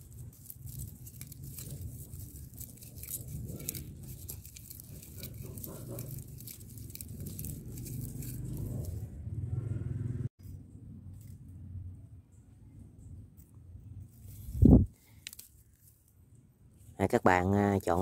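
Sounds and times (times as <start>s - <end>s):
dry fibre strips crackling: 0.0s - 9.1s, 14.1s - 16.2s, 17.0s - 18.0s
low steady rumble: 0.0s - 17.0s.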